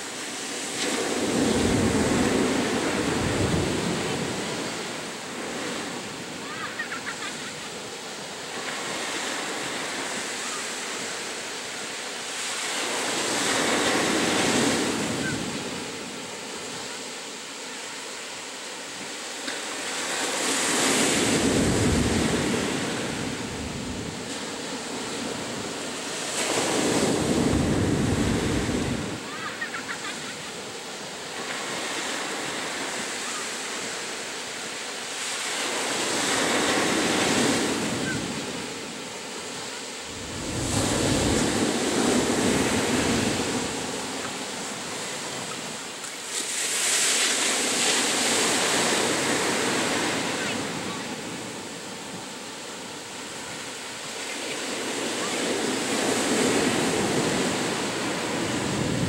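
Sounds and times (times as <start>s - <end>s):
waves crashing on beach: 0.0s - 59.0s
steady surf rush: 18.8s - 59.0s.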